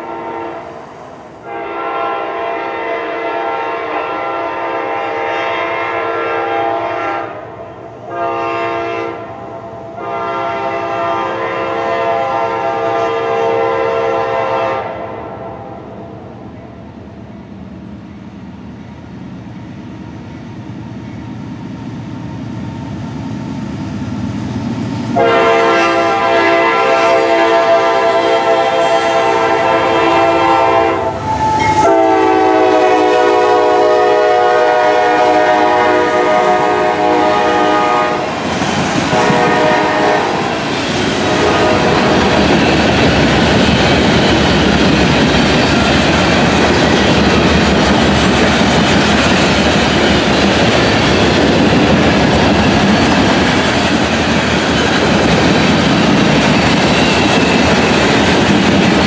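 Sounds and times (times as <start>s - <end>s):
train air horn blasts: 0.0s - 16.4s, 25.1s - 38.4s, 39.0s - 42.6s
train wheels clickety-clack: 31.2s - 59.0s.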